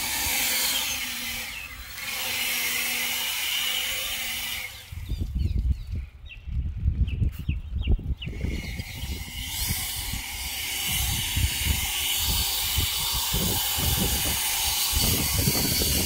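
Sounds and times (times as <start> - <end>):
leaf blower running: 0.0 - 5.2, 8.4 - 16.0.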